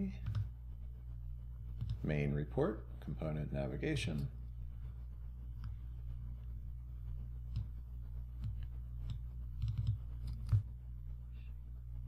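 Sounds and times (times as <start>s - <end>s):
steady low hum: 0.0s - 12.0s
computer mouse clicks: 0.2s - 0.5s, 1.8s - 2.0s, 7.5s - 7.7s, 8.4s - 10.7s.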